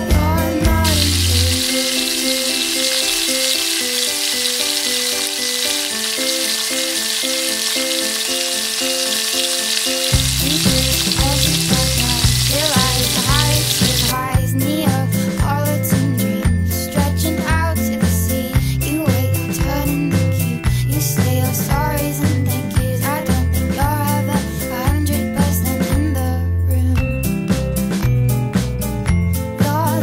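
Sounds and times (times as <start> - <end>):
deep-frying sizzle in oil: 0.7 - 14.2.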